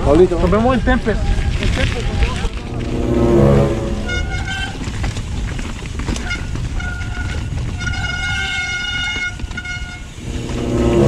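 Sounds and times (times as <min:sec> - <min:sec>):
rumble of tyres and wind: 0:00.0 - 0:11.0.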